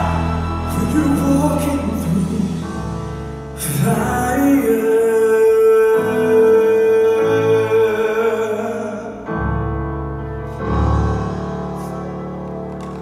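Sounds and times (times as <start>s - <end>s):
piano chords: 0.0s - 13.0s.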